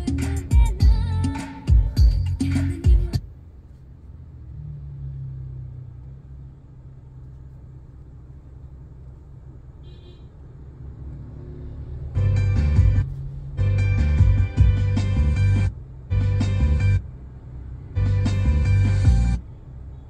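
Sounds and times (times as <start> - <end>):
music from car stereo: 0.0 - 3.5, 12.1 - 19.4
car cabin rumble: 0.0 - 4.0.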